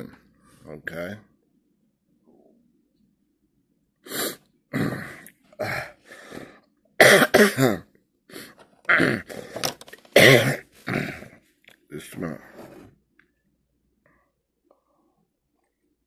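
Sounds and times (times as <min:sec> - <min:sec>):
man coughing: 0:07.0 - 0:07.9, 0:10.1 - 0:11.3.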